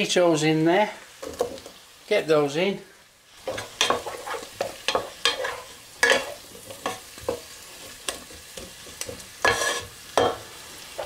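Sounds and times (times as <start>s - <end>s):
vegetables sizzling: 0.0s - 11.0s
wooden spoon scraping saucepan: 3.4s - 7.4s, 8.2s - 9.9s.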